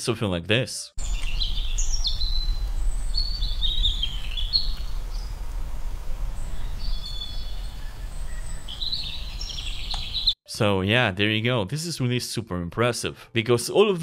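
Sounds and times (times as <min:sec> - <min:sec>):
steady low rumble: 0:01.0 - 0:08.6
birds chirping: 0:01.0 - 0:10.4.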